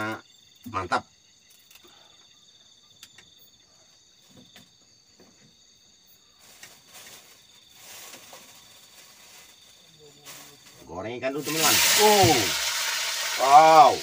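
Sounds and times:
crickets trilling: 0.0 - 14.0
hiss: 6.4 - 14.0.

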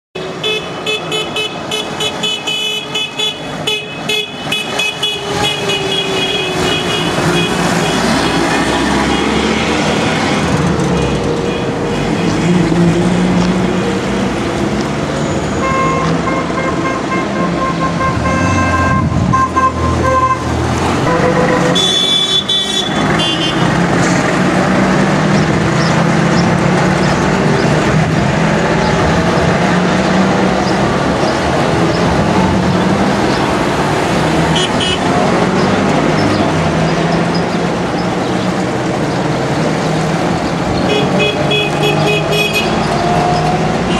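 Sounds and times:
car horns tooting: 0.2 - 12.7, 15.2 - 23.8, 34.4 - 35.2, 40.8 - 43.9
two-stroke car engines passing: 4.6 - 43.9.

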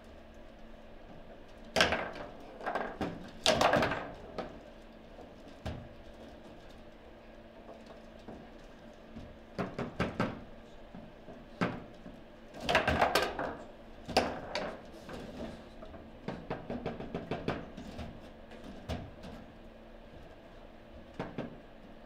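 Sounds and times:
foosball ball striking figures: 1.8 - 4.5, 12.6 - 14.8
foosball rods clacking: 1.8 - 4.5.

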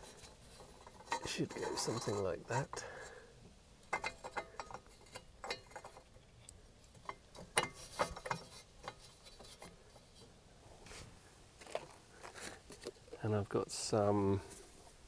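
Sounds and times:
metal parts and tools clicking: 3.9 - 6.1.

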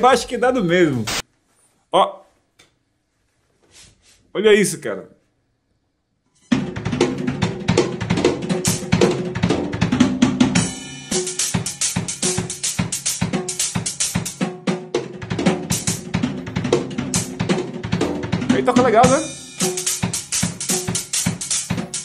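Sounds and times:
drum kit playing fast groove: 6.5 - 22.0.

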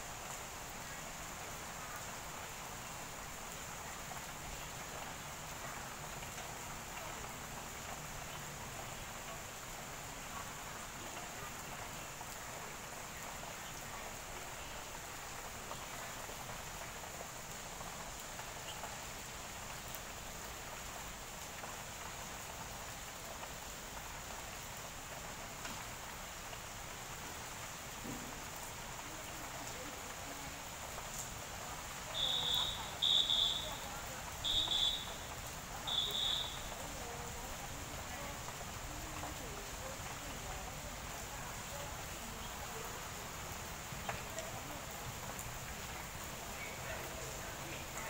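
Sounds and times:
light rain falling: 0.0 - 48.0.

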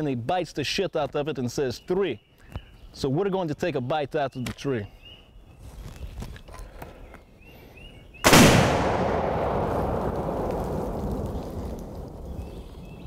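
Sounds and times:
loud explosive blast: 8.3 - 12.5
long echoing rumble: 8.3 - 13.0.

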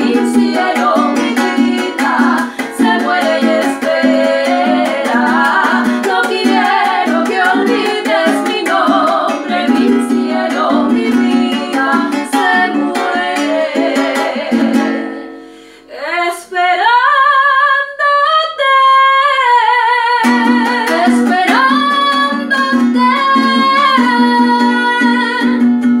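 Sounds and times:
strummed string instrument: 0.0 - 15.8, 20.2 - 26.0
women singing in harmony: 0.0 - 25.6.

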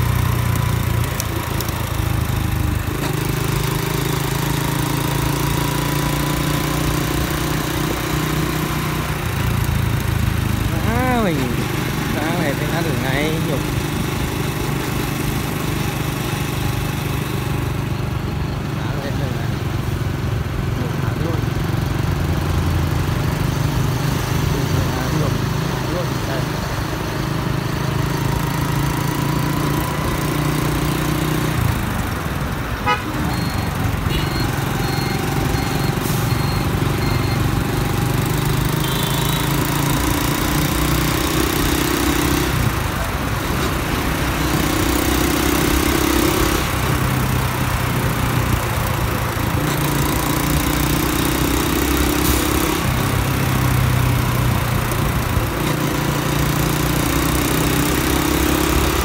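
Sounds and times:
motorcycle engine droning: 0.0 - 59.0
short horn beeps: 32.8 - 37.5, 38.8 - 39.5.

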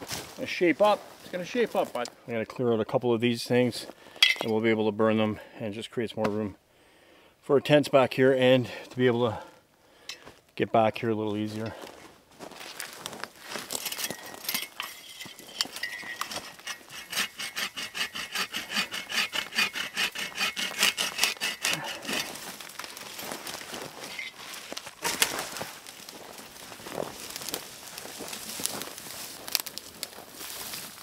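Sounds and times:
hand saw cutting branches: 15.3 - 25.6
wood cracking: 15.6 - 31.0.

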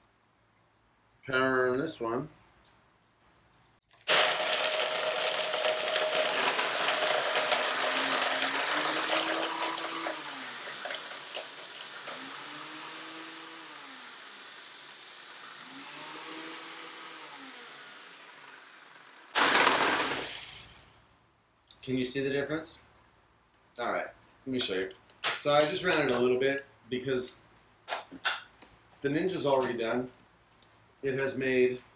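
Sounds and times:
ice cracking in blender jars: 3.9 - 12.3
blender motors whirring: 4.0 - 20.8.

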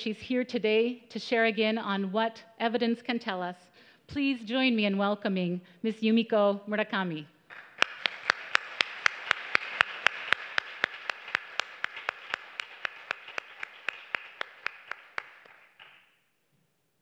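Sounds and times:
audience applauding: 7.5 - 16.1
close person clapping: 7.5 - 16.1.

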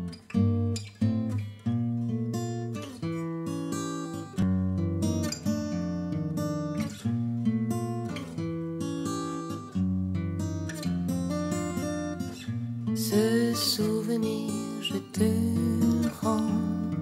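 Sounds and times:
acoustic guitar strummed chords: 0.0 - 17.0.

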